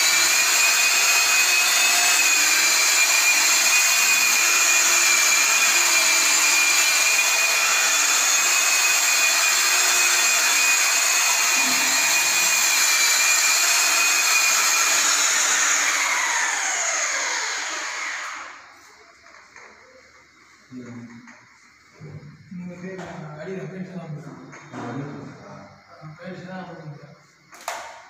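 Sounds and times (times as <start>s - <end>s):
electric polisher motor whine: 0.0s - 18.8s.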